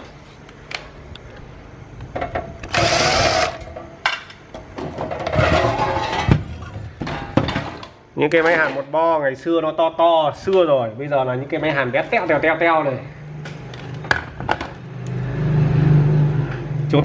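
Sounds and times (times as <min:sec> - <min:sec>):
power tool whirring: 0:02.6 - 0:03.7
metal rattling and scraping: 0:04.7 - 0:08.8.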